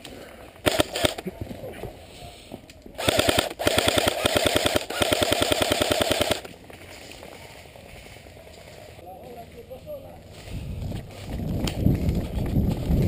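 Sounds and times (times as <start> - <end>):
airsoft rifle full-auto bursts: 0.6 - 1.2, 3.0 - 6.5.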